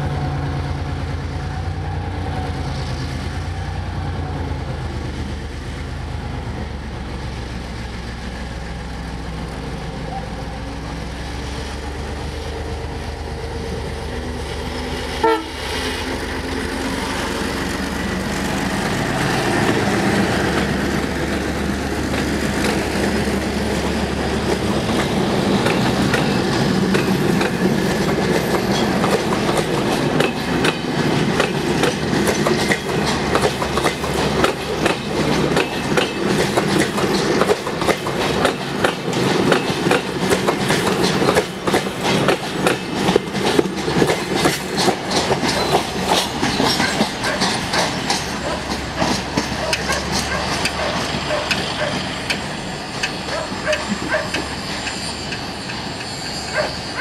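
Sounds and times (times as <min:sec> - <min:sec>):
locomotive engine running: 0:04.4 - 0:57.0
train wheels clattering over rails: 0:13.4 - 0:57.0.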